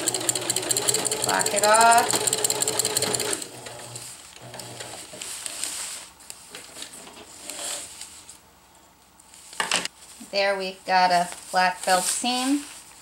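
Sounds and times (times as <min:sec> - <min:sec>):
nylon fabric rustling: 0:11.1 - 0:13.0.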